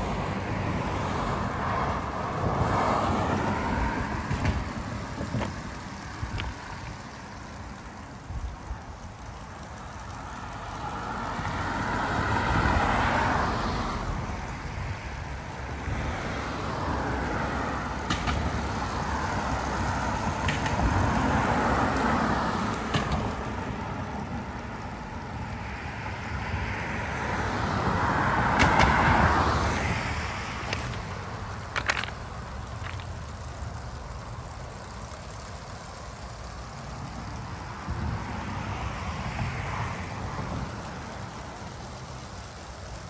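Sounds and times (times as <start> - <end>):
toy train wheels clattering: 2.4 - 25.6, 28.4 - 43.0
sharp plastic clicks: 18.0 - 18.8, 20.4 - 21.0, 21.9 - 23.4, 28.5 - 29.3, 30.6 - 36.9.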